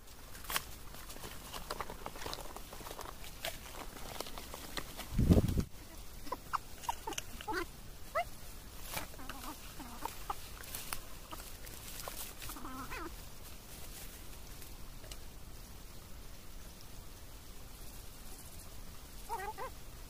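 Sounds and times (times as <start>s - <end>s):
bird calls: 5.7s - 13.2s, 19.2s - 19.8s.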